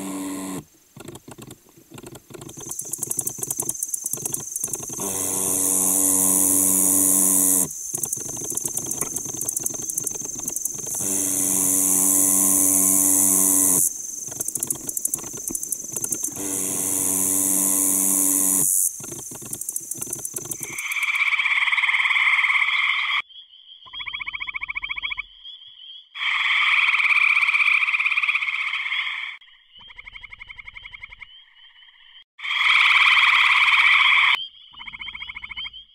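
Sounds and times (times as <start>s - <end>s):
katydid buzzing: 0.0s - 1.4s, 2.2s - 21.2s
treefrogs trilling: 2.2s - 35.9s.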